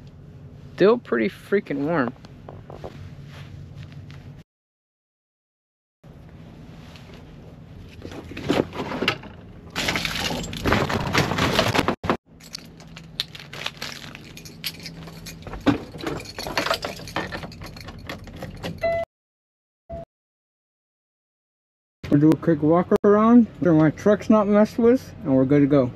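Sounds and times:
plastic packets crinkling: 0:12.5 - 0:14.8.

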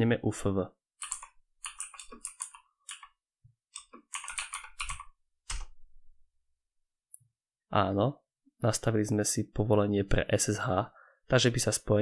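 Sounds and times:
typing on computer keyboard: 0:01.0 - 0:05.8.

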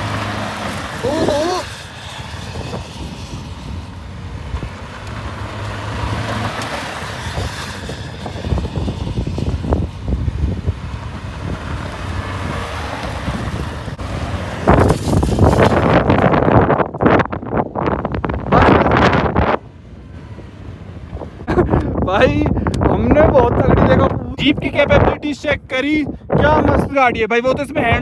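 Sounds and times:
tyres scrabbling through gravel: 0:00.0 - 0:10.0, 0:11.0 - 0:17.2
car engine under load: 0:00.0 - 0:24.8
wind buffeting microphone: 0:00.0 - 0:28.0.

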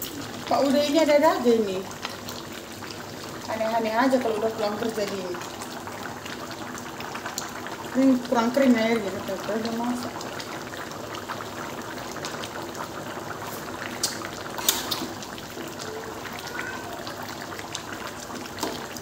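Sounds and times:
curry bubbling in pan: 0:00.0 - 0:19.0.

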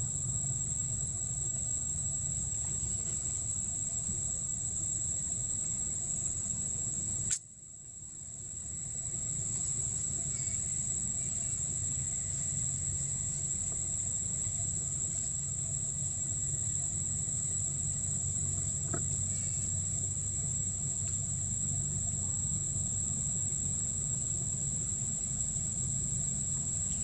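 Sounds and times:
insects droning: 0:00.0 - 0:27.0
low background rumble: 0:07.9 - 0:27.0.

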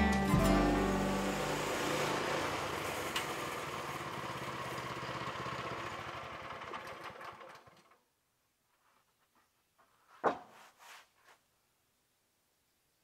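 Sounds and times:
small gasoline engine running: 0:00.0 - 0:08.0.

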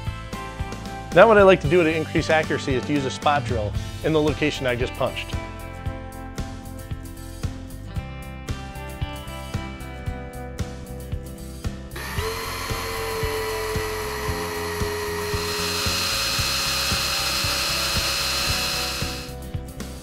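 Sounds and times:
electric drill cutting metal: 0:12.0 - 0:19.4.

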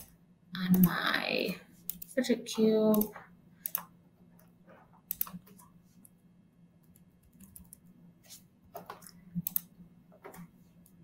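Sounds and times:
faint low hum: 0:00.0 - 0:11.0
keyboard and mouse clicks: 0:01.9 - 0:06.2, 0:06.8 - 0:07.9, 0:08.7 - 0:11.0.

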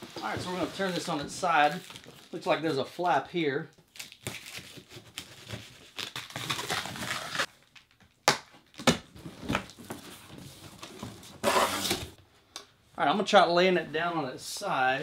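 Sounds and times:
cardboard scraping: 0:09.8 - 0:12.2.

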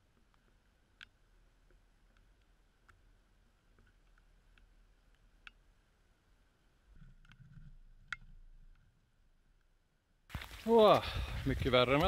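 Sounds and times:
footsteps on rocks: 0:10.3 - 0:12.0.

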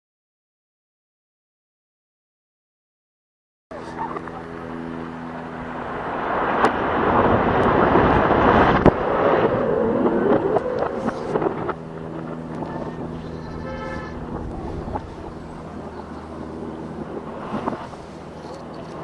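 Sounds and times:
distant demolition blast rumble: 0:04.0 - 0:18.8.

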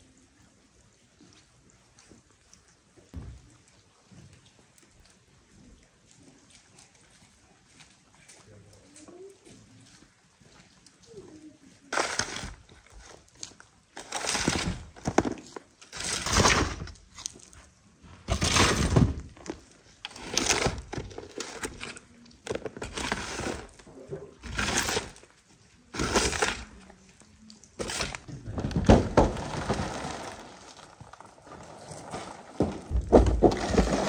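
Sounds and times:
shovel scraping soil off metal: 0:11.9 - 0:12.6, 0:14.0 - 0:16.9, 0:18.3 - 0:23.8, 0:24.4 - 0:25.3, 0:25.9 - 0:26.8, 0:27.8 - 0:28.3.

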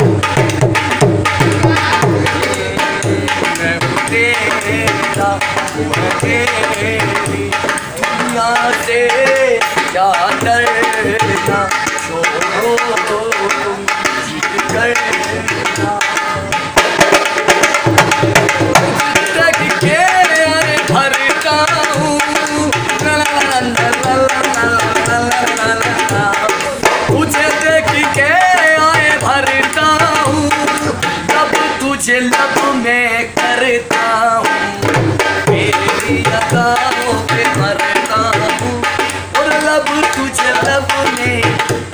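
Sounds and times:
hand drum played fast: 0:00.0 - 0:41.9
man singing: 0:00.0 - 0:41.9.

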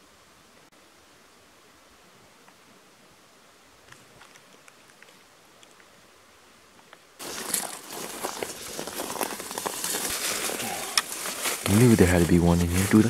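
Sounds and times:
small ticks: 0:03.9 - 0:05.9
footsteps crunching through dry brush: 0:07.2 - 0:13.0.

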